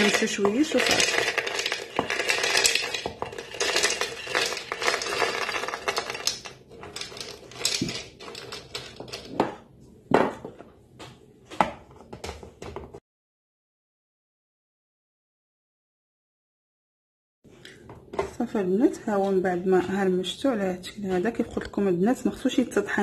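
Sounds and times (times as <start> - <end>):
almonds rattling into bowl: 0.0 - 9.4.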